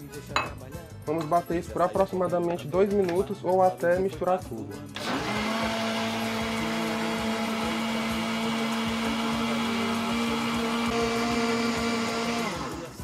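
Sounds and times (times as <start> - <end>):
blender running: 5.0 - 13.0.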